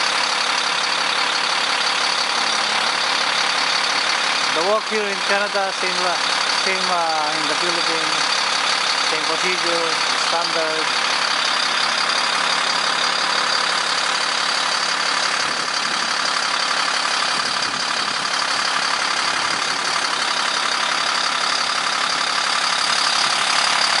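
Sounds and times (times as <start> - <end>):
truck engine idling: 0.0 - 24.0.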